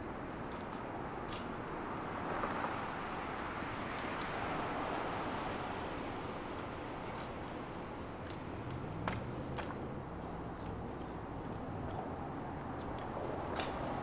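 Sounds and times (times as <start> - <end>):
outdoor background noise: 0.0 - 14.0
faint high ticks: 4.0 - 12.0.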